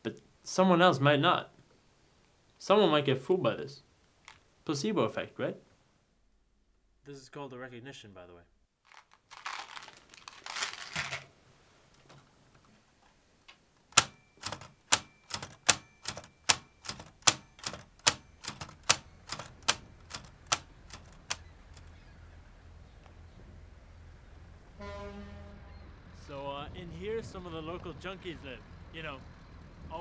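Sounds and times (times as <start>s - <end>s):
plastic bag rustling: 8.8s - 12.3s
typewriter keys striking: 13.9s - 21.9s.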